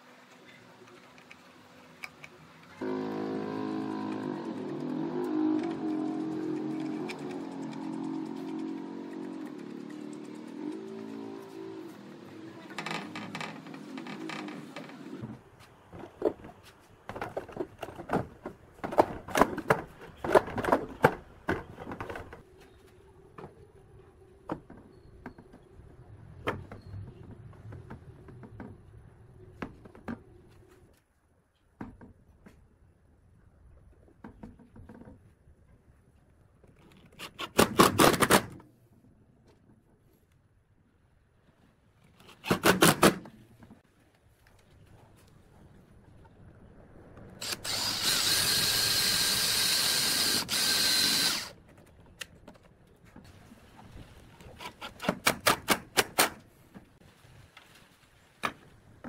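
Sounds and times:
cordless drill driving a screw: 47.4s - 51.6s
impact driver bursts: 47.4s - 51.6s.

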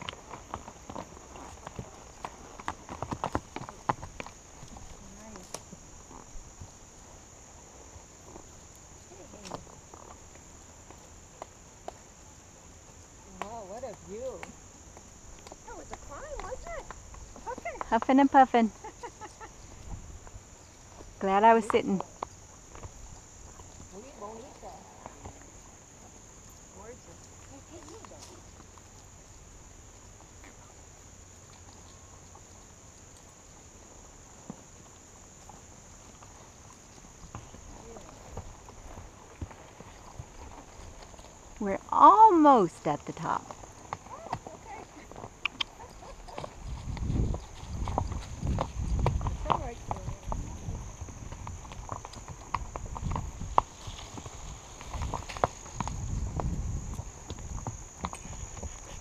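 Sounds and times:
insects droning: 0.0s - 59.0s
small ticks: 45.3s - 47.7s
low wind rumble: 45.4s - 59.0s.

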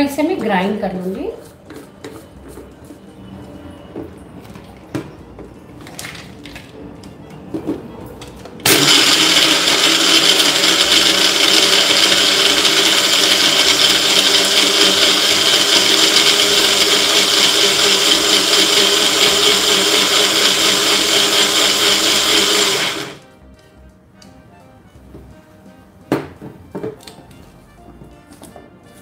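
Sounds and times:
blender grinding: 8.6s - 23.2s.

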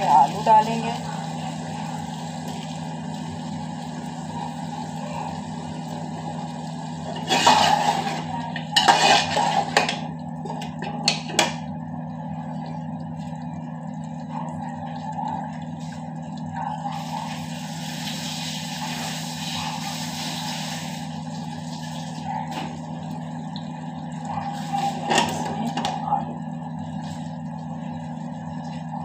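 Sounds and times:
steady low hum: 0.0s - 20.0s
scraping and clattering pot: 7.1s - 11.6s, 24.9s - 26.0s.

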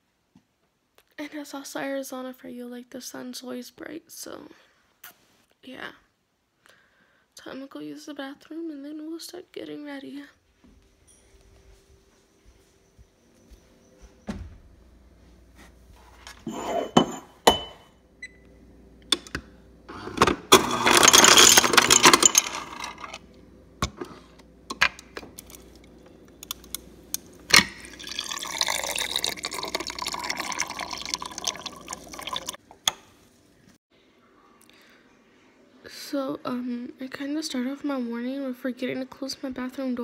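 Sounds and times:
drinking glass clinking: 16.5s - 17.9s, 27.6s - 32.6s
ice cubes clattering into glass: 20.5s - 23.2s, 27.7s - 32.6s
water pouring into glass: 27.5s - 32.6s.

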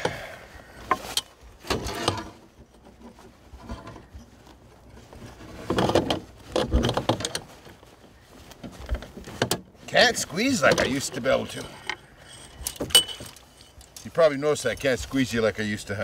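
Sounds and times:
metal trap clicking and scraping: 11.5s - 14.1s.

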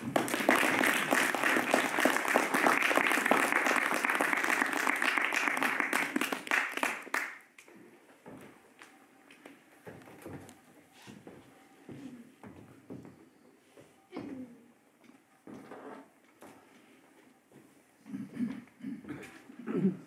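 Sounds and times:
audience clapping: 0.0s - 7.7s.

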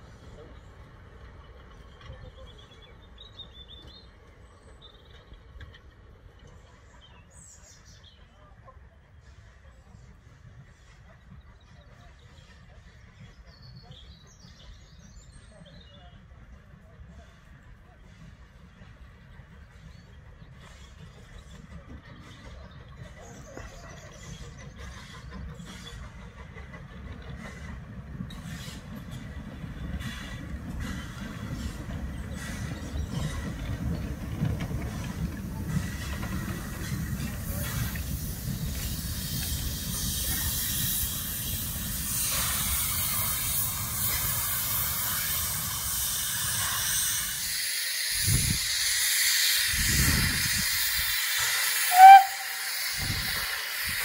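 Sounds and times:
train rumbling on rails: 0.0s - 54.0s
steam engine hissing: 9.1s - 54.0s
train whistle toot: 51.4s - 53.4s.

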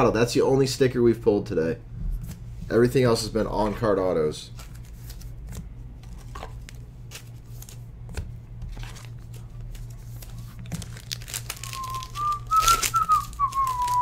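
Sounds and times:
low electrical hum: 0.0s - 14.0s
cards and plastic wrapping crinkling: 4.5s - 14.0s
person whistling a tune: 11.6s - 14.0s.

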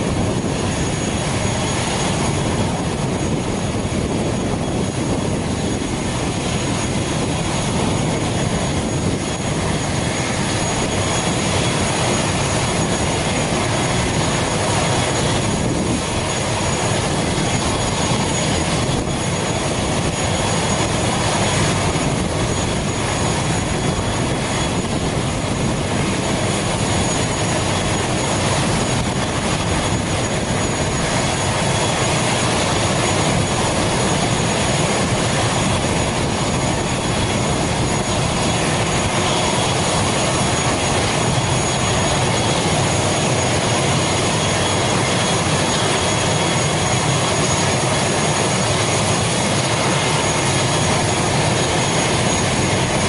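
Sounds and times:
turboprop engine running: 0.0s - 53.0s.

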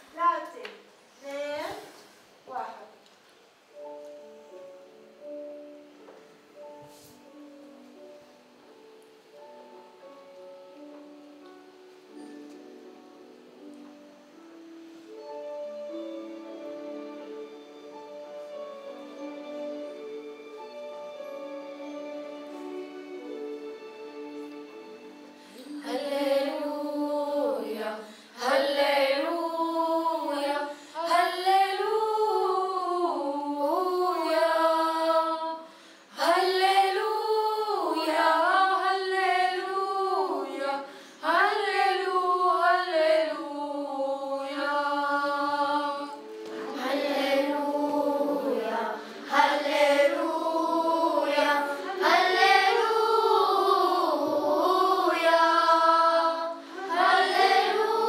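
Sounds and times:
children's choir singing: 15.0s - 58.0s.

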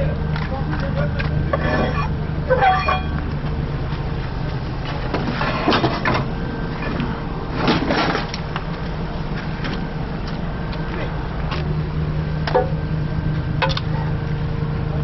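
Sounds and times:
heavy vehicle engine running: 0.0s - 15.0s
metal crunching and creaking: 0.4s - 3.7s.

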